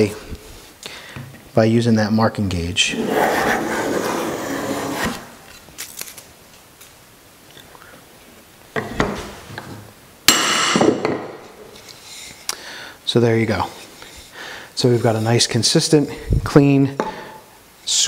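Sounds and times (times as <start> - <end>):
hand plane shaving wood: 2.9 - 5.3.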